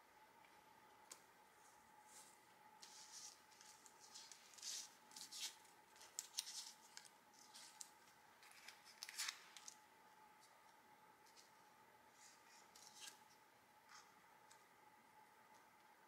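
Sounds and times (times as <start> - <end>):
faint steady hum: 0.0 - 16.0
paper rustling and scraping on table: 1.6 - 9.7.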